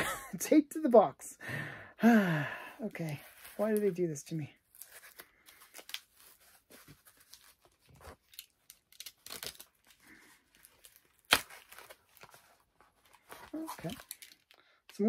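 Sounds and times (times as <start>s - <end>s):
packing tape ripping off cardboard: 4.7s - 14.6s.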